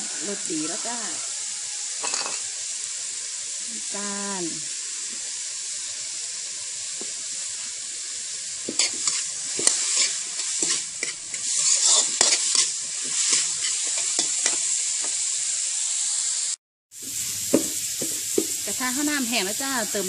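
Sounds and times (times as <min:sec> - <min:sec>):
bamboo shoots sizzling in a wok: 0:00.0 - 0:20.0
metal spatula scraping wok: 0:01.9 - 0:02.5, 0:08.5 - 0:15.8.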